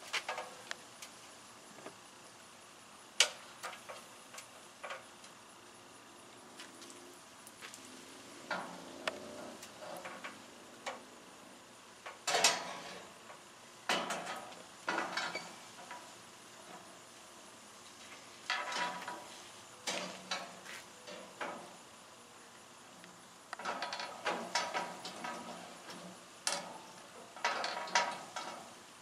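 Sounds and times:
metal frame parts clanking: 0:12.1 - 0:16.9, 0:18.0 - 0:21.7, 0:23.6 - 0:28.8.

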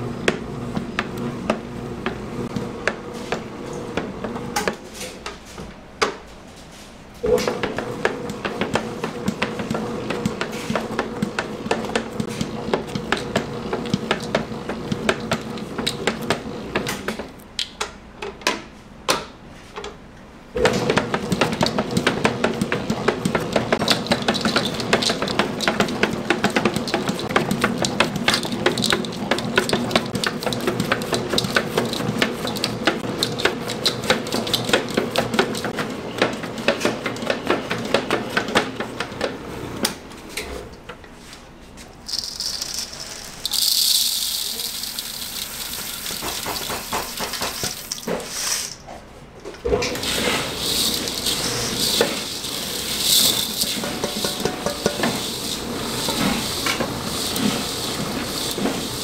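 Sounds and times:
utensils clattering and tapping: 0:20.6 - 0:39.2, 0:42.0 - 0:48.9, 0:49.6 - 0:59.0.

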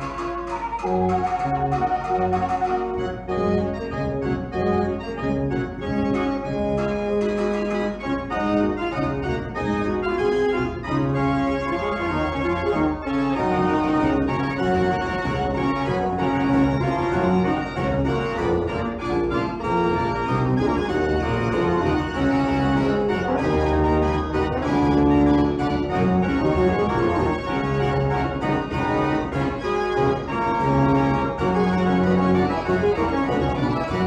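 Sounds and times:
organ chords: 0:00.0 - 0:34.0.

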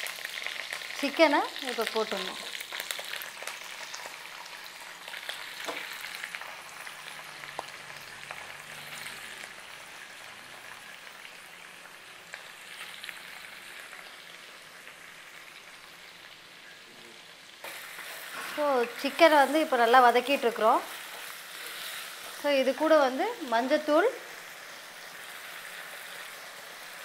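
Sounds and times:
chicken sizzling in hot oil: 0:00.0 - 0:27.0.

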